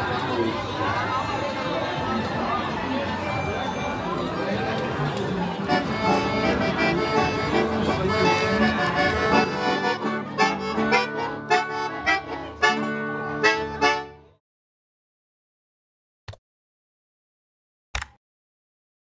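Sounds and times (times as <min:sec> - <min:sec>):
accordion music: 0:05.4 - 0:14.4.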